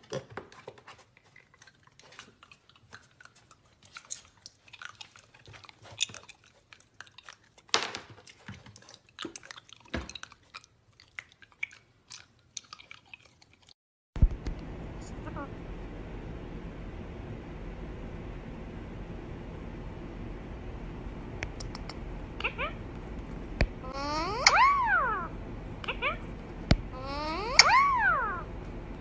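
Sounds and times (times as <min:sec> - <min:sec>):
pig chewing with crisp crunches: 0:00.0 - 0:13.8.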